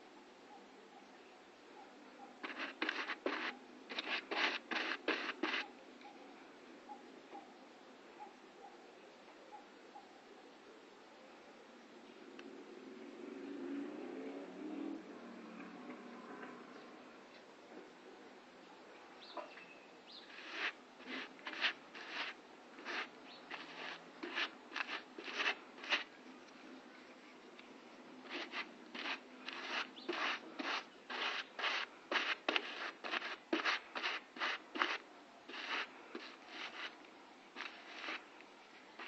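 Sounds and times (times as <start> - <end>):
short scraping strokes by hand: 2.4 - 5.7, 20.2 - 26.2, 28.2 - 38.3.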